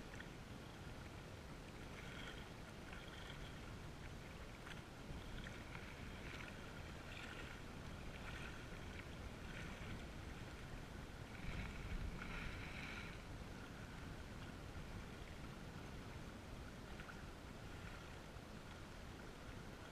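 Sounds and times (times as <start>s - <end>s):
waves lapping on rocky shore: 0.0s - 15.1s.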